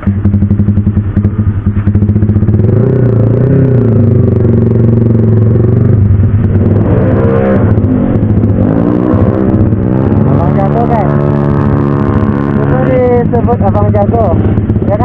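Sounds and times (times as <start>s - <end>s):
motorcycle engine running: 0.0s - 15.0s.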